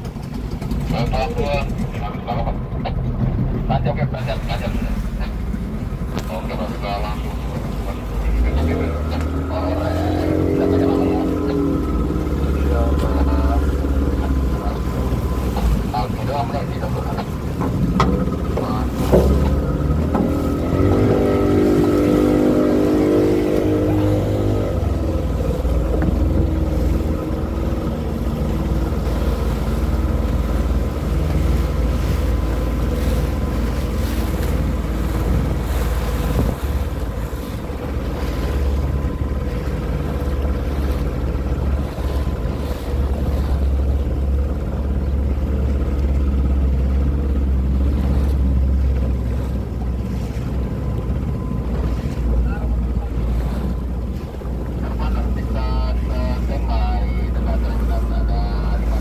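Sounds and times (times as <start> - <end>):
speedboat engine droning: 0.0 - 59.0
water splashing: 0.0 - 59.0
wind on microphone: 17.6 - 44.0.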